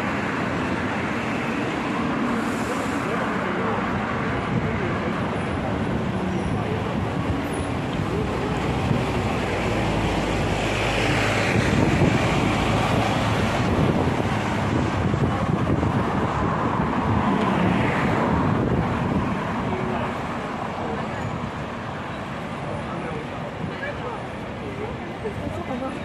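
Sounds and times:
road traffic engine and tyre noise: 0.0s - 26.0s
wind on microphone: 3.8s - 20.1s.

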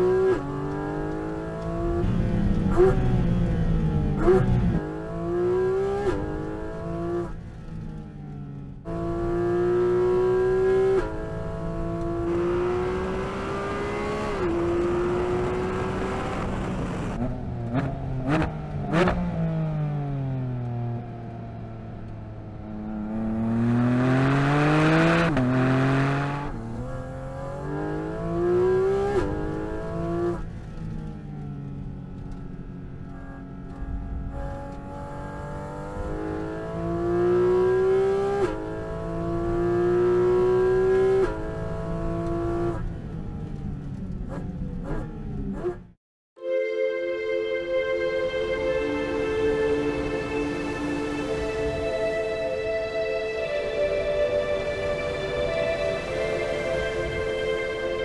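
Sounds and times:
car engine at full throttle: 0.0s - 45.9s.

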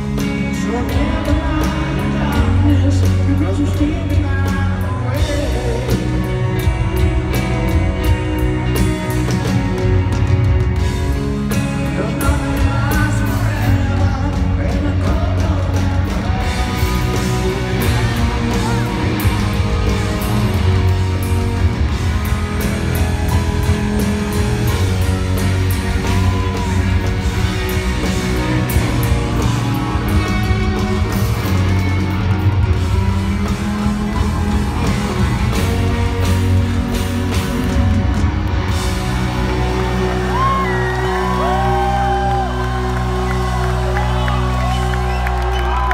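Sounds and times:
drums: 0.0s - 45.9s
electric guitar: 0.0s - 45.9s
live rock band playing: 0.0s - 45.9s
person singing: 0.2s - 6.7s.

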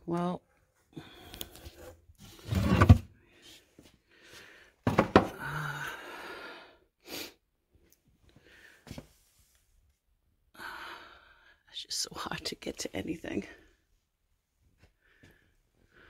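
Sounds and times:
thump: 4.8s - 5.3s.

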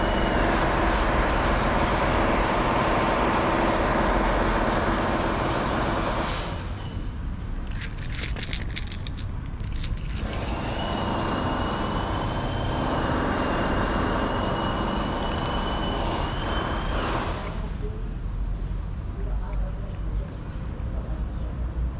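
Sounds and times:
cat crunching dry kibble: 7.6s - 10.7s.

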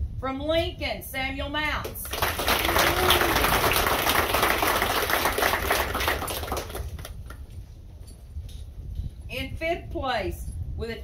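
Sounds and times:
crowd applauding: 2.0s - 7.4s.

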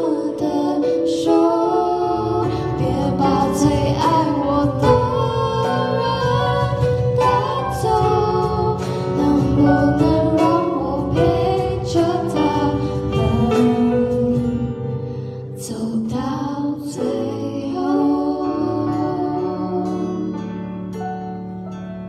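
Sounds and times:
women singing: 0.0s - 20.5s
acoustic guitar: 0.0s - 22.0s
keyboard: 0.0s - 22.0s
percussion hits: 2.7s - 15.2s.

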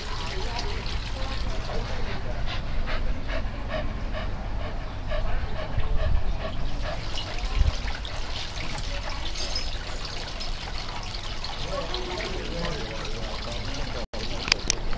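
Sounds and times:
dog panting: 1.9s - 8.3s.

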